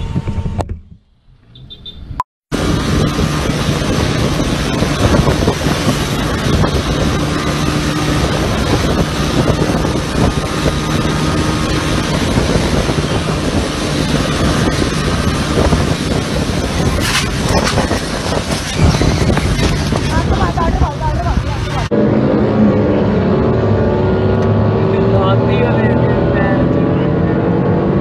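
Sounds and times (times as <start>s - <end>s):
wind rush on microphone: 0.0s - 1.2s, 2.5s - 28.0s
motorcycle engine: 0.0s - 28.0s
crash knocks and scrapes: 16.9s - 20.2s.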